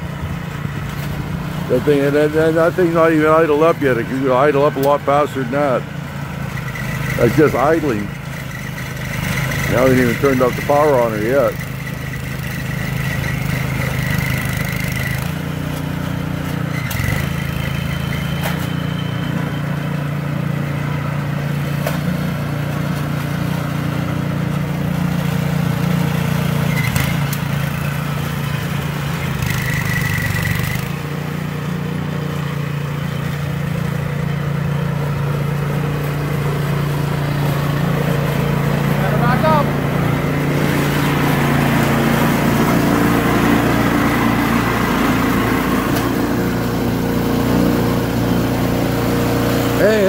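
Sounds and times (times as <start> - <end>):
engine idling: 0.0 - 50.0
high thin squeal: 17.4 - 19.7.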